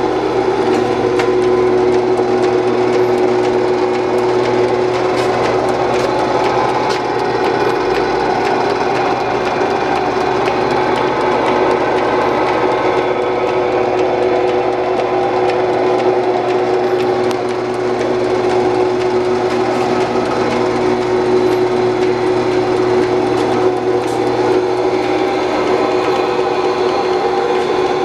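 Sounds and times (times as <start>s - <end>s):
milling machine drone: 0.0s - 28.0s.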